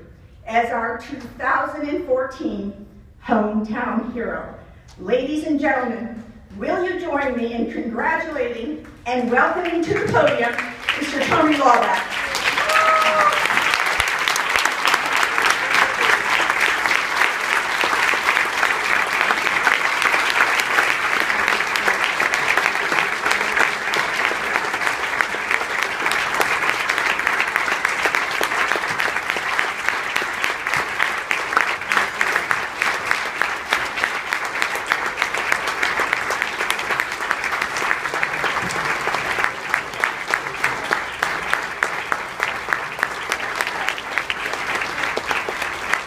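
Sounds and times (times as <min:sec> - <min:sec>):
audience applauding: 0:09.9 - 0:46.0.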